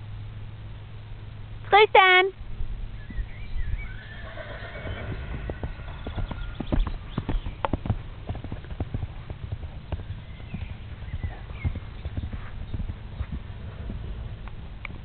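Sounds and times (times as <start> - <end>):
horse hoofbeats on turf: 4.9 - 15.0.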